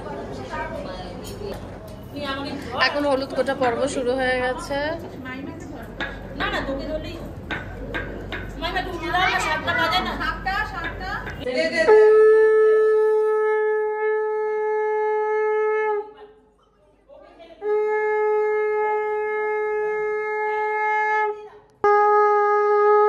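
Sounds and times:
conch shell blasts: 11.9 - 16.0, 17.6 - 23.0.

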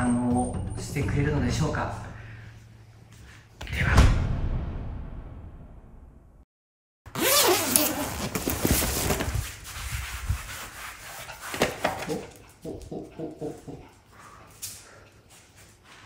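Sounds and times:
fabric carrier rustling: 7.1 - 9.7.

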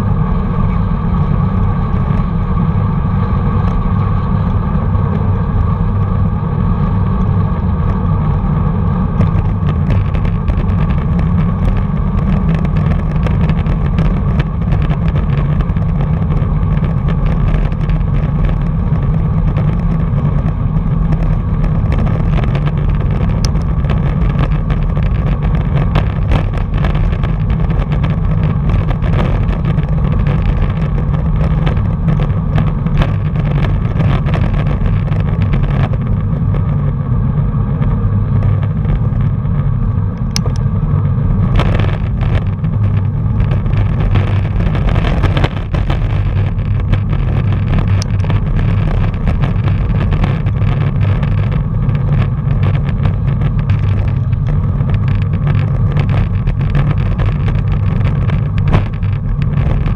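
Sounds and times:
tyre noise on road: 0.0 - 59.9
wind buffeting microphone: 0.0 - 59.9
small clicks and knocks: 9.2 - 36.9, 40.2 - 40.7, 41.5 - 59.9.

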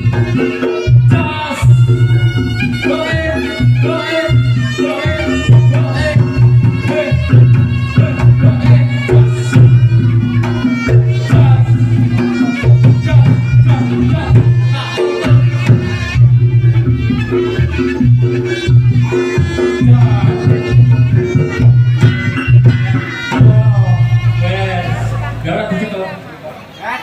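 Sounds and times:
pulsing low bass beat: 0.0 - 25.7
hand drums: 0.0 - 25.8
gamelan music: 0.0 - 26.1
wavering pitched melody: 0.0 - 26.4.

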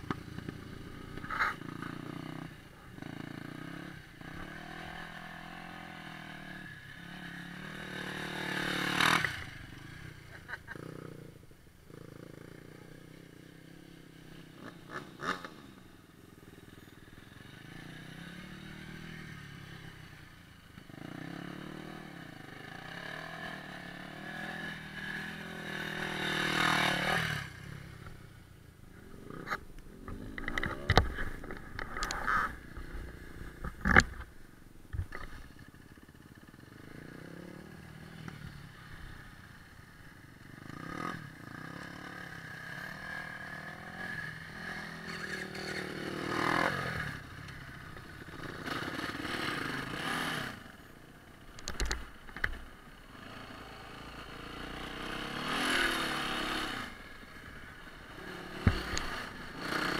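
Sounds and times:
off-road engine revving: 0.0 - 10.0, 20.8 - 28.0, 40.6 - 47.3, 48.0 - 50.6, 51.6 - 57.0, 57.9 - 59.9.

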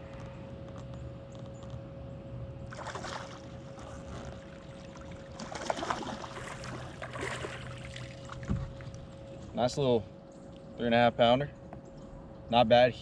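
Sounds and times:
faint steady whine: 0.0 - 13.0
fish thrashing in water: 2.7 - 9.2
dull thump: 8.4 - 8.8.

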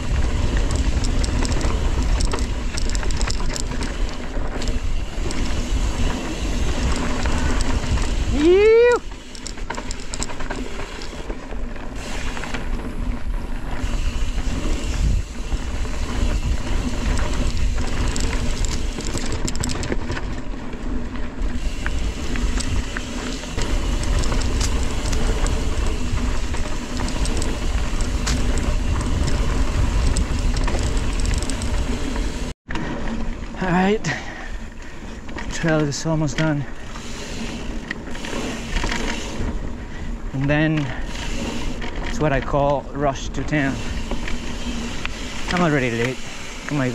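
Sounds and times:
wind rumble on microphone: 0.0 - 10.3, 12.0 - 20.4, 21.4 - 32.5
bike clicks and rattles: 0.0 - 46.9
bike tyre noise: 0.0 - 46.9.

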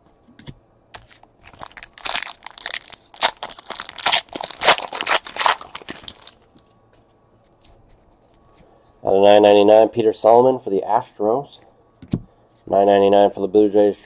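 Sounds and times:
foil pack crinkling and tearing: 1.4 - 6.4.

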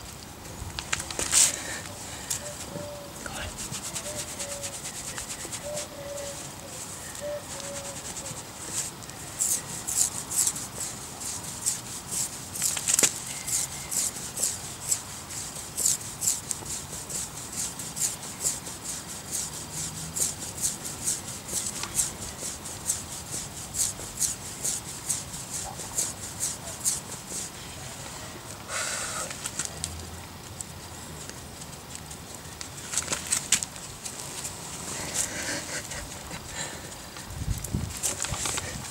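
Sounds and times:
hand rubbing cat fur: 0.8 - 28.1.

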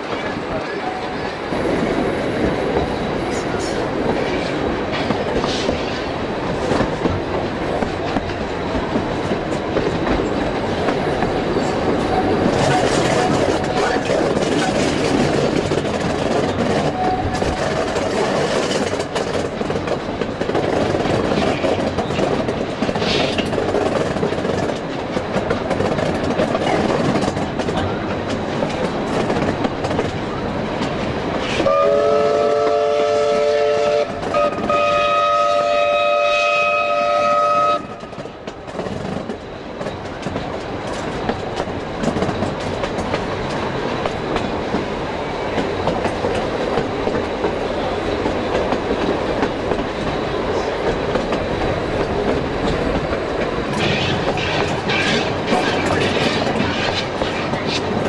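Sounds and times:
train wheel and carriage noise: 0.0 - 58.0
steam locomotive chime whistle: 31.6 - 37.9.

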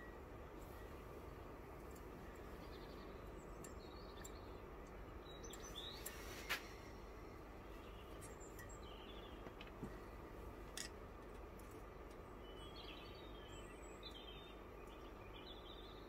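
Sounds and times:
faint bird chirps: 0.0 - 10.2, 12.3 - 16.0
light metal clicks: 1.8 - 6.9, 8.2 - 12.3.

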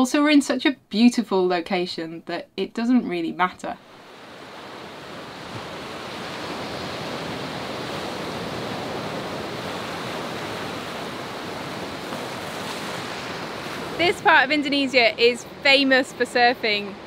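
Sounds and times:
ocean surf breaking: 3.8 - 17.0.

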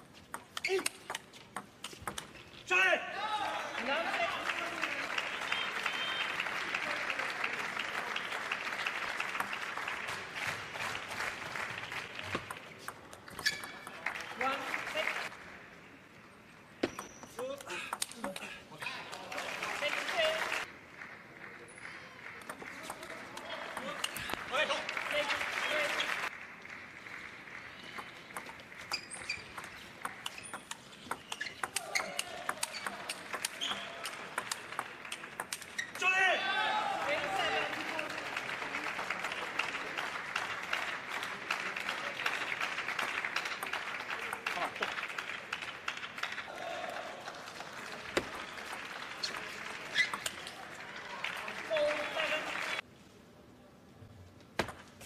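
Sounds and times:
audience applauding: 3.3 - 12.4, 13.9 - 15.4, 19.0 - 28.9, 36.7 - 52.8
table tennis ball hits: 28.4 - 35.7.

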